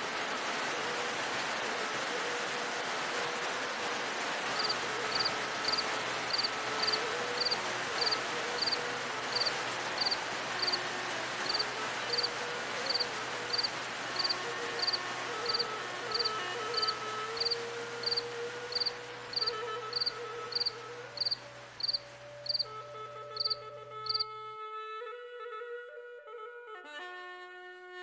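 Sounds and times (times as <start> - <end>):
rain hissing: 0.0 - 24.2
faint melody: 0.5 - 28.0
cricket chirping: 4.6 - 8.8, 9.4 - 10.7, 12.9 - 22.6, 23.4 - 24.2.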